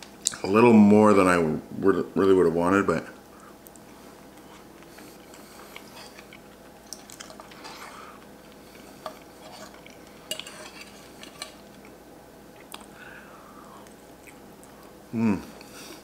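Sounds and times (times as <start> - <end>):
cutlery scraping on plate: 9.0 - 11.6.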